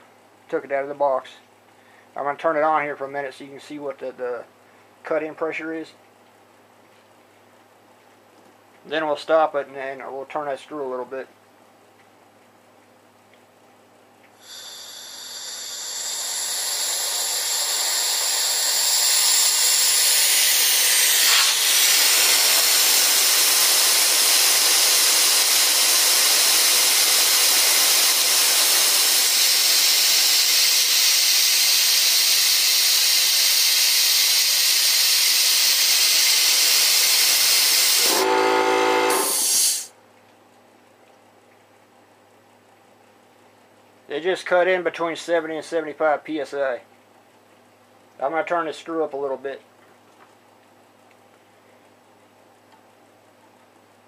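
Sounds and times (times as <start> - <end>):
compressed air hissing: 14.4 - 39.9
valve whistle: 14.4 - 39.9.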